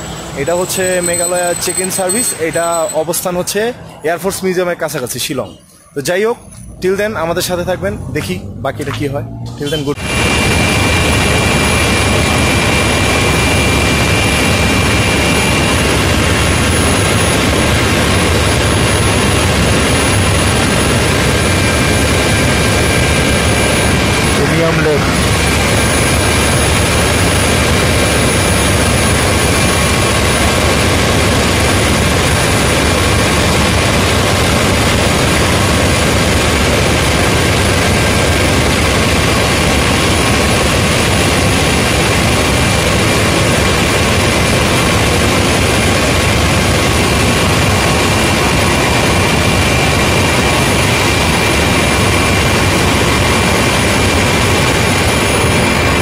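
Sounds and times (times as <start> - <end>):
faint high whine: 0.0 - 8.1
helicopter engine and rotor roar: 0.0 - 56.0.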